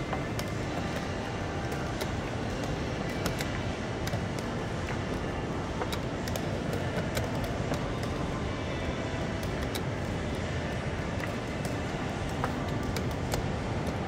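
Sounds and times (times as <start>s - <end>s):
steady background noise: 0.0s - 14.0s
chess pieces clicking on board: 11.2s - 14.0s.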